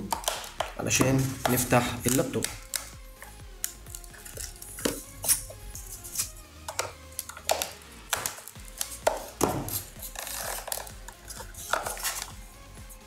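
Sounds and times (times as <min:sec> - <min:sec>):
plastic cracking and clicking: 0:02.0 - 0:02.9, 0:06.7 - 0:09.2
blade scraping plastic: 0:04.0 - 0:12.3.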